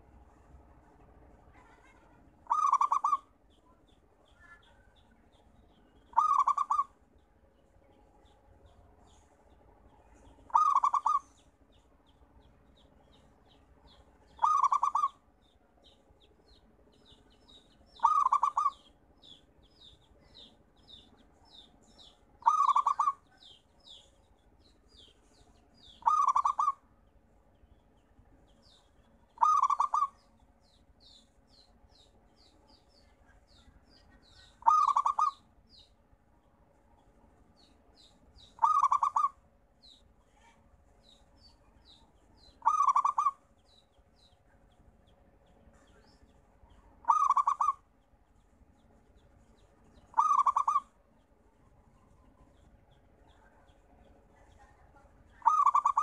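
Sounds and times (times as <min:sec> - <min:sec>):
small birds chirping: 0:00.0 - 0:56.0
dove cooing: 0:02.5 - 0:03.3, 0:06.1 - 0:06.9, 0:10.5 - 0:11.2, 0:14.3 - 0:15.2, 0:18.0 - 0:18.8, 0:22.4 - 0:23.2, 0:26.0 - 0:26.8, 0:29.4 - 0:30.1, 0:34.6 - 0:35.4, 0:38.6 - 0:39.4, 0:42.6 - 0:43.4, 0:47.0 - 0:47.8, 0:50.1 - 0:50.8, 0:55.4 - 0:56.0.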